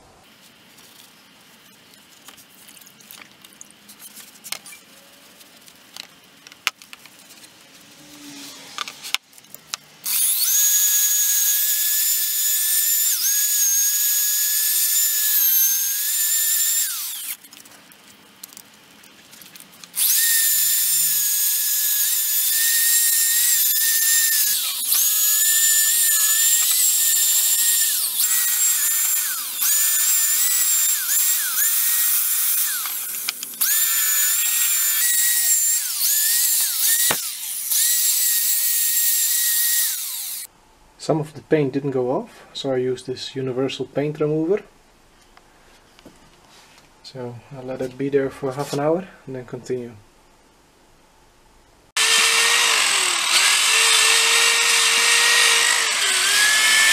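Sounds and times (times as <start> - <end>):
electric drill with wire brush: 10.0 - 17.5, 20.0 - 40.5, 52.0 - 56.9.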